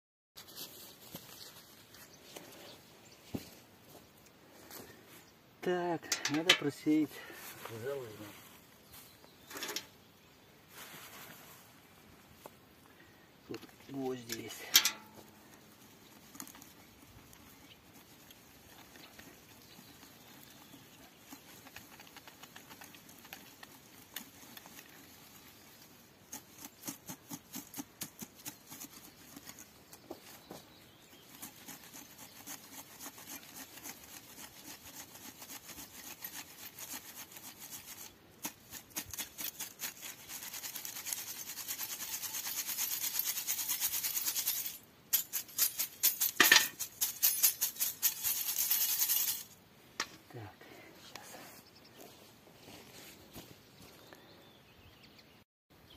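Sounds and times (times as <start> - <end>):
ash rustling in mesh: 10.7 - 11.8, 14.0 - 49.6
metal sieve shaken and tapped: 14.2 - 15.2.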